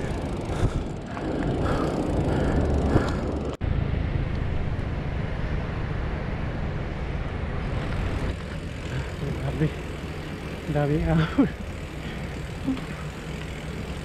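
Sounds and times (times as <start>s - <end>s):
wind buffeting microphone: 0.0s - 8.4s.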